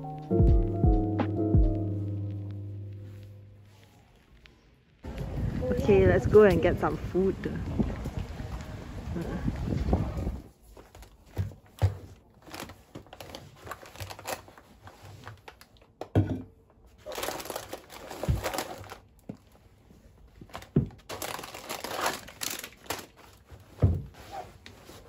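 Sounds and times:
canvas bag rustling: 10.5 - 15.6, 16.9 - 25.0.

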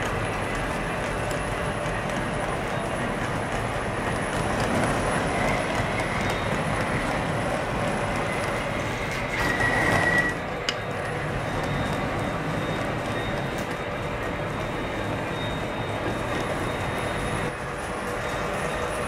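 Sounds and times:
model train wheels rumbling on rails: 0.0 - 19.0
high squeal: 4.0 - 19.0.

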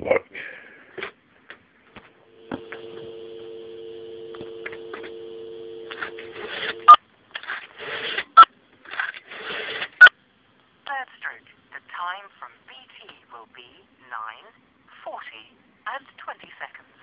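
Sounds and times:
rotary dial whirring: 2.2 - 7.0
telephone dial tone: 2.4 - 7.0.

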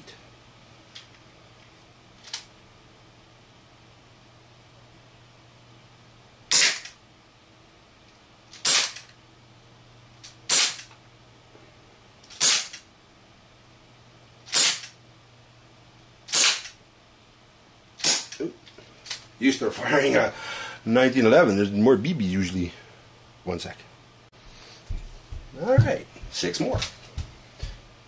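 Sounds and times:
airsoft revolver shots popping: 6.5 - 6.9.

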